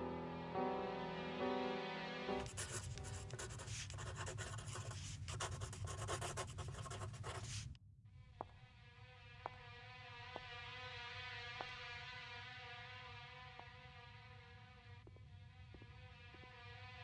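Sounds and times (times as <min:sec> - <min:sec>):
piano phrase: 0:00.0 - 0:02.5
pencil scratching on paper: 0:02.4 - 0:07.8.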